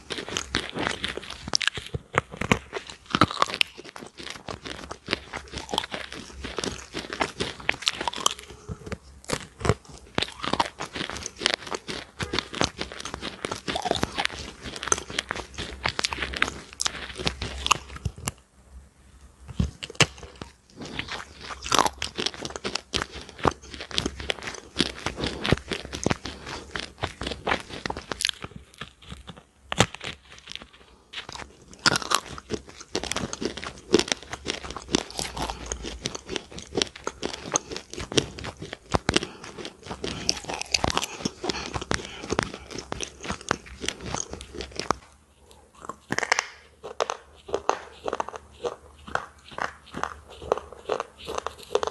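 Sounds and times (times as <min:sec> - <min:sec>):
crunchy chewing: 0:00.0 - 0:18.5, 0:19.2 - 0:51.9.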